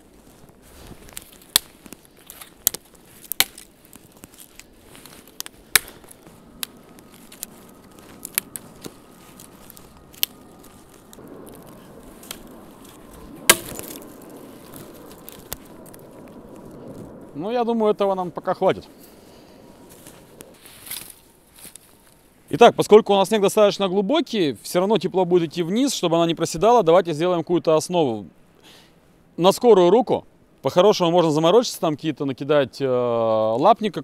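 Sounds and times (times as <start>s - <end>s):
dry branches snapping: 0.0s - 19.2s, 19.8s - 22.2s.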